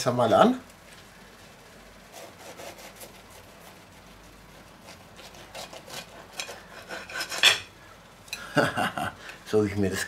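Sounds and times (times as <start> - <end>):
knife sawing through burrito: 2.1 - 7.6.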